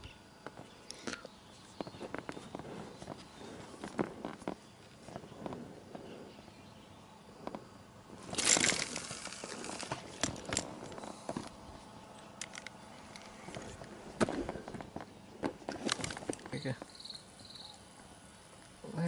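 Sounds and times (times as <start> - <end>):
rustling and crinkling handling: 7.4 - 16.9
sharp clicks: 12.3 - 13.7.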